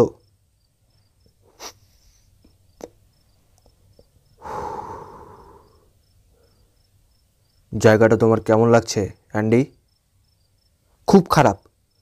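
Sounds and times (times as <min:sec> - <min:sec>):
crickets chirping: 0:00.0 - 0:12.0
person exhaling long breath: 0:04.4 - 0:05.9.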